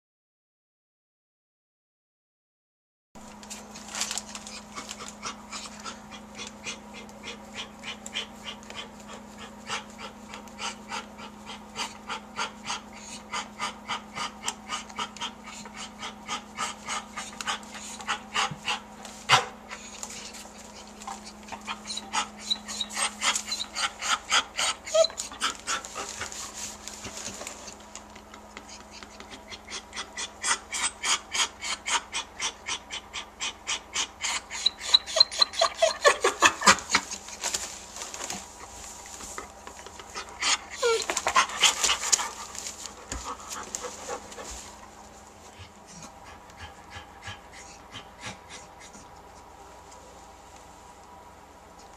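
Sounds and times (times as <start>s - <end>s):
dog panting: 4.4s - 37.6s, 39.4s - 49.6s.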